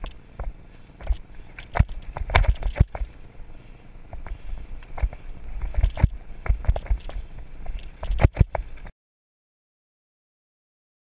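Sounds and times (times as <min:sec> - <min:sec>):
bike knocking and rattling: 0:00.0 - 0:03.3, 0:04.1 - 0:08.9.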